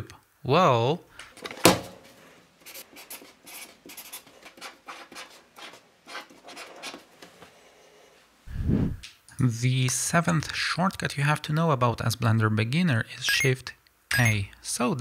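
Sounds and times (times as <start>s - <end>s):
marker pen scratching on card: 2.6s - 7.1s.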